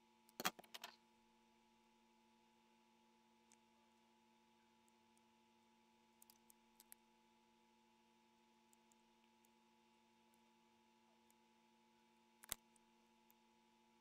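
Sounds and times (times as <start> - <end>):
faint electrical hum: 0.0 - 14.0
faint small clicks: 3.4 - 3.7, 4.8 - 7.0, 8.7 - 9.6, 12.4 - 13.4.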